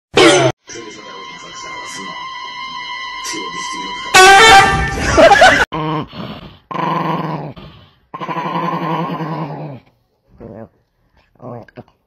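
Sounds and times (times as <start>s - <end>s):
loud cry with bending pitch: 0.2s - 5.6s
small dog growling: 5.7s - 10.8s.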